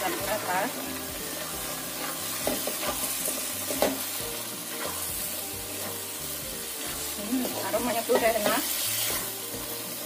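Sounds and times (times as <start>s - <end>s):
vegetables sizzling in a wok: 0.0s - 10.0s.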